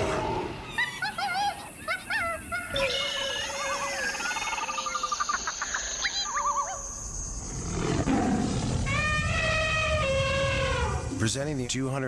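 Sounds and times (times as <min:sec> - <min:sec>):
trilling bird calls: 0:00.5 - 0:07.8
big cat roaring: 0:07.5 - 0:10.9.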